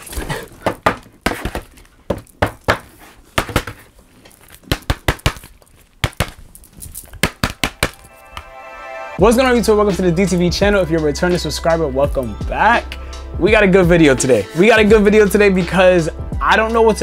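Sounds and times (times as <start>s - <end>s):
card package tapping and clicking: 4.5s - 8.1s.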